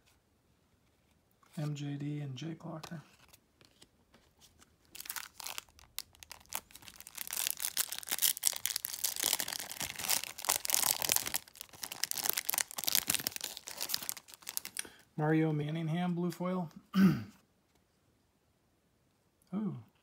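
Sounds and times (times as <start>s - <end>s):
wrapper tearing and crinkling: 4.8s - 14.8s.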